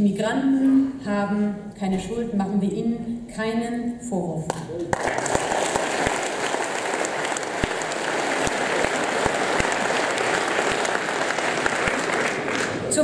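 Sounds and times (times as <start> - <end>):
large audience applauding: 4.9 - 13.0.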